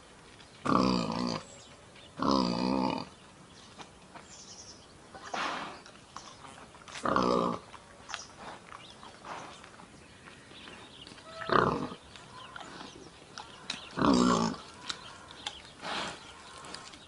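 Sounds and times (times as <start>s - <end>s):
pig grunting: 0.6s - 1.5s, 2.2s - 3.2s, 5.2s - 7.8s, 11.2s - 17.0s.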